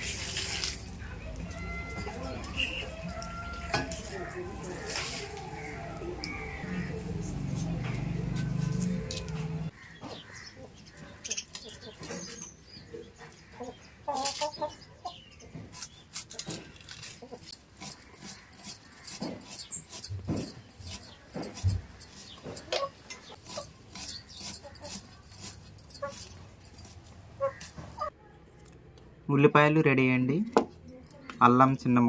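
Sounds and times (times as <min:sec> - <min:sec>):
onion skins crackling against blade: 0:11.2 - 0:12.5, 0:15.6 - 0:28.1.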